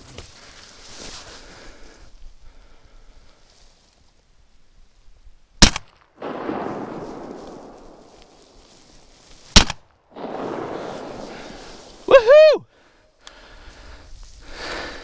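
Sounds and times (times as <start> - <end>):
shotgun blasts: 5.6 - 8.4, 9.5 - 12.0.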